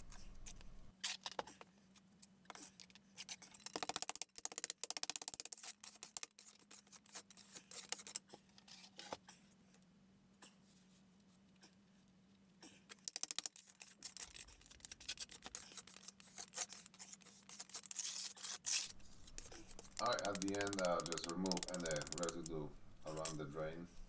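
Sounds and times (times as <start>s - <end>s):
hand trowels scraping concrete: 2.5s - 9.1s, 12.9s - 23.6s.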